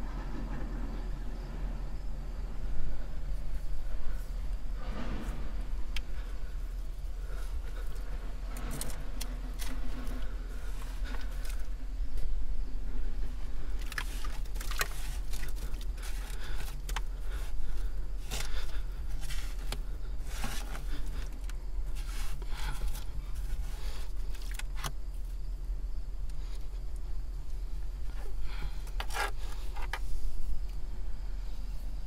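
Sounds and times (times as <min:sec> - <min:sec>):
steady low hum: 0:00.0 - 0:32.0
hand tool scraping damp soil: 0:03.6 - 0:11.7, 0:13.8 - 0:24.9, 0:28.2 - 0:30.2.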